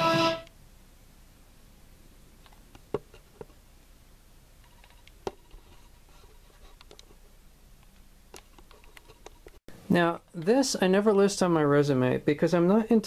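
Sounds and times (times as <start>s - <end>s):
faint clicks and ticks: 6.6s - 7.2s, 7.8s - 9.6s.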